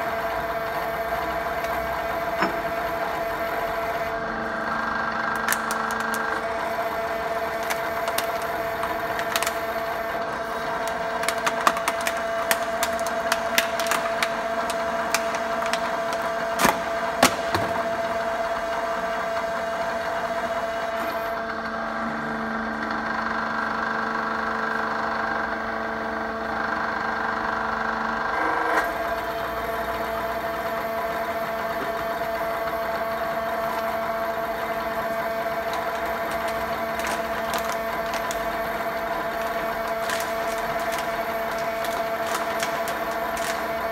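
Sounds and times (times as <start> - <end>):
hydraulic press humming: 0.0 - 24.0, 28.2 - 43.9
plastic bottle cracking: 7.5 - 9.7, 10.7 - 17.8, 35.0 - 43.9.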